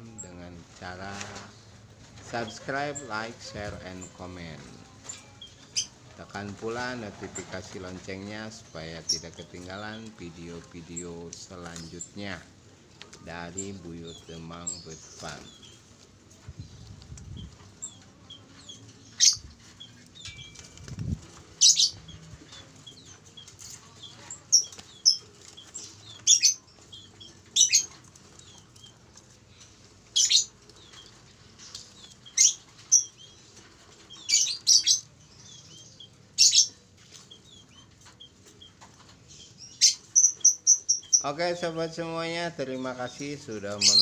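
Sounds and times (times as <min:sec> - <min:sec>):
birds making sharp high calls: 0:16.5 - 0:28.9, 0:30.0 - 0:41.6, 0:43.7 - 0:44.0.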